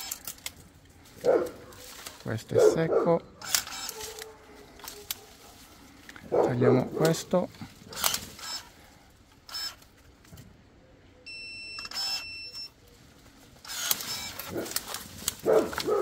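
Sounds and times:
branch cracking: 0.0 - 2.5, 3.4 - 8.9, 12.9 - 16.0
pruning shears motor whining: 0.0 - 10.1, 11.8 - 16.0
branches and leaves rustling: 0.0 - 10.7, 12.7 - 16.0.

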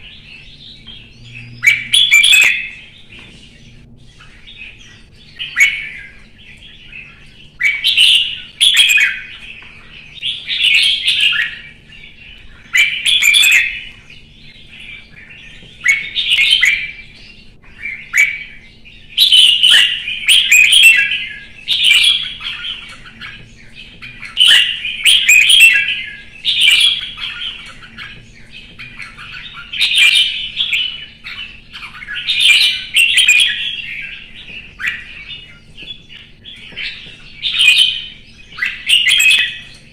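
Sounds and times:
bulbul singing: 0.0 - 39.9.

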